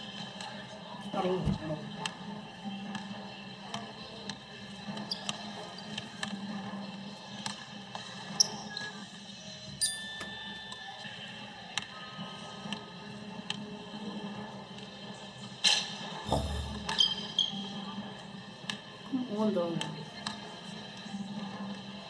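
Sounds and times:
basketball bouncing on wood floor: 16.3 - 17.0.

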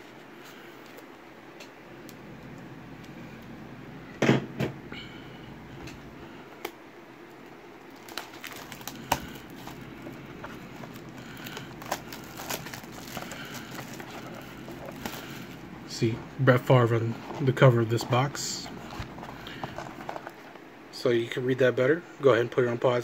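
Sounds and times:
plastic shrink-wrap crinkling: 7.8 - 15.6.

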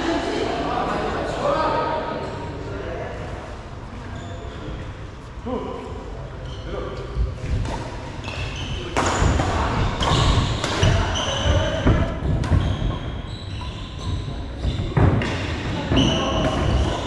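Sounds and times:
shoes squeaking on court: 4.2 - 4.8, 8.2 - 17.0
rackets hitting shuttlecock: 7.6 - 13.1.

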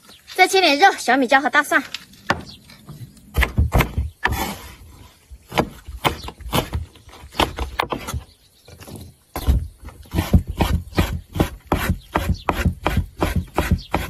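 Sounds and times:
cleaver chopping on wooden board: 3.3 - 4.5, 5.5 - 8.2, 9.4 - 14.0.

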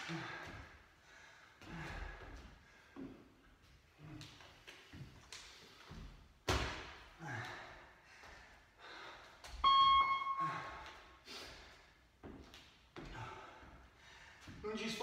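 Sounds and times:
steady beep: 9.6 - 10.8.

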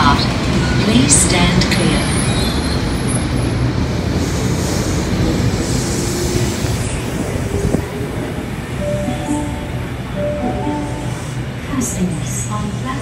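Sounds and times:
electric train pulling out: 4.1 - 12.8.

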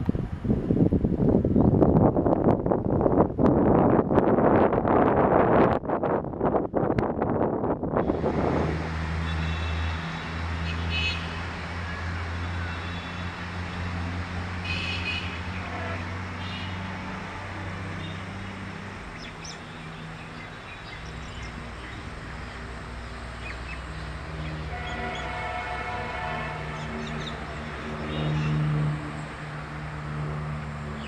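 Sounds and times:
diesel locomotive engine drone: 0.0 - 31.0.

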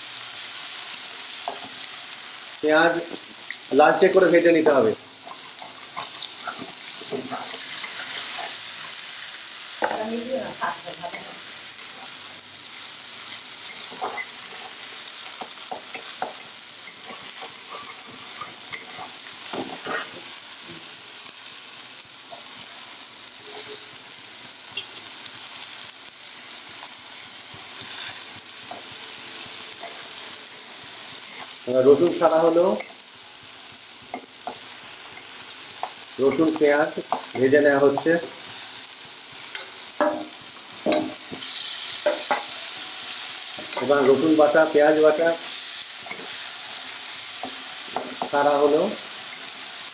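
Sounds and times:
onions sizzling in hot oil: 0.0 - 49.9
metal spatula scraping a pan: 5.2 - 9.0, 11.1 - 20.3, 22.4 - 24.0, 26.7 - 33.0, 40.8 - 48.0.

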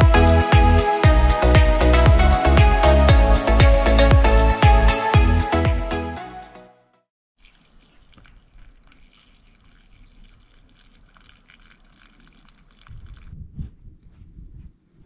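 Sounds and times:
background music: 0.0 - 7.0.

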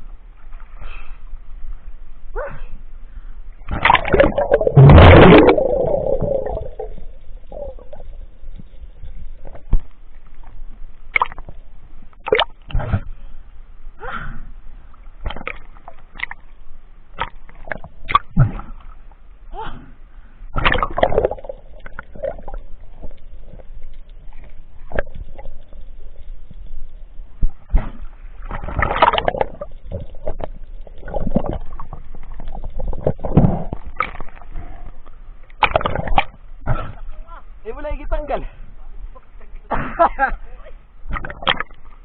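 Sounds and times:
underwater rush of dive: 3.6 - 9.8
bubbling: 3.7 - 10.0, 20.5 - 36.4
underwater knocks and clicks: 35.5 - 36.4, 41.1 - 41.9.

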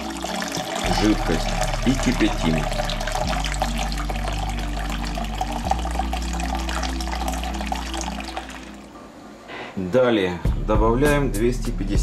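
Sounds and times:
liquid pouring into pot: 0.0 - 8.9.

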